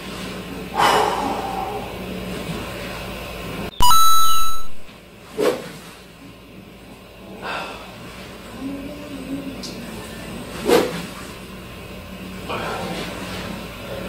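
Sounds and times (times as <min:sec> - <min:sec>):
electronic chime: 0:03.7 - 0:04.9.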